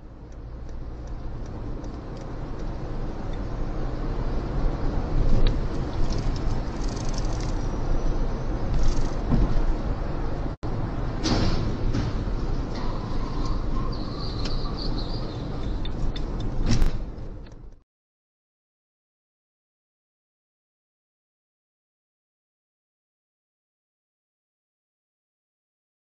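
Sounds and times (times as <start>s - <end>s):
car interior tyre and engine rumble: 0.0s - 17.8s.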